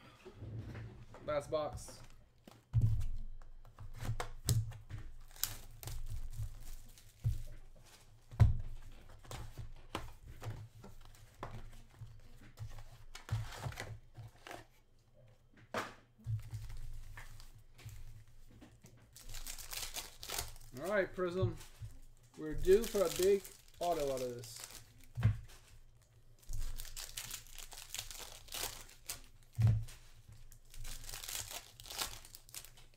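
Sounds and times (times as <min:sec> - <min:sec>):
plastic wrap tearing: 0:05.2 - 0:07.2, 0:19.2 - 0:21.1, 0:22.5 - 0:25.2, 0:26.4 - 0:29.5, 0:30.4 - 0:32.9
foil packs crinkling: 0:19.1 - 0:21.5, 0:22.4 - 0:25.2, 0:26.4 - 0:32.9.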